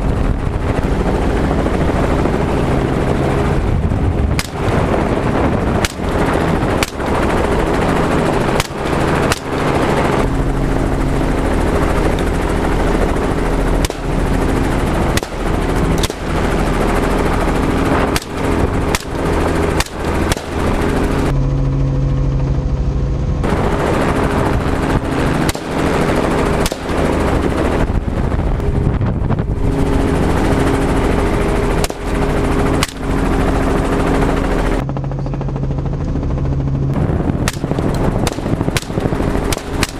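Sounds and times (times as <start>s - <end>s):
helicopter engine and rotor drone: 0.0s - 39.9s
rifle shots: 4.4s - 5.0s, 5.8s - 7.8s, 8.4s - 10.1s, 13.7s - 21.0s, 25.4s - 27.5s, 31.8s - 33.1s, 37.4s - 39.9s.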